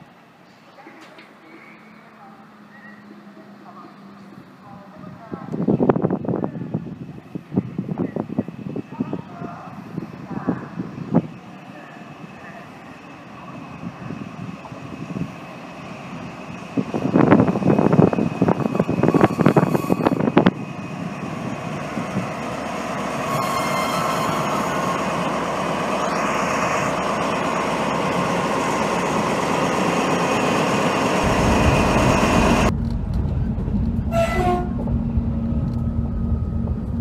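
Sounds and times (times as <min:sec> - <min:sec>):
train rumble inside coach: 0:00.0 - 0:37.0
locomotive passing close by: 0:09.6 - 0:37.0
brief high tone: 0:23.3 - 0:25.2.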